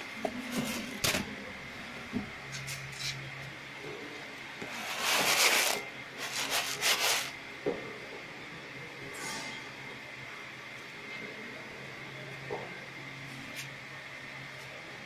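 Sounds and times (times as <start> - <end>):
dry slices rustling in plastic tray: 4.7 - 7.4.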